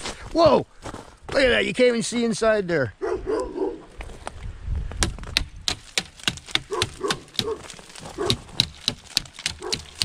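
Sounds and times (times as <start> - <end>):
ice cracking off wire: 5.7 - 10.0.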